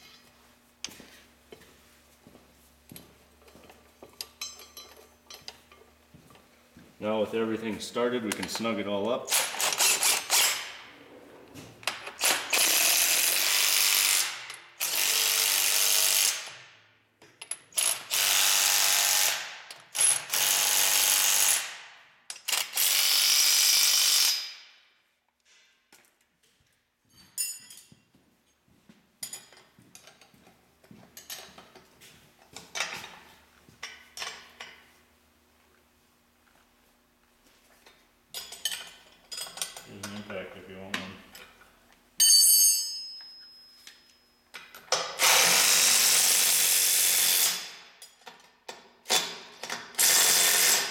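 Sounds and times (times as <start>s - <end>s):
impact wrench bursts: 9.3s - 10.8s, 11.8s - 16.7s, 17.6s - 24.6s, 45.0s - 47.9s, 49.1s - 50.9s.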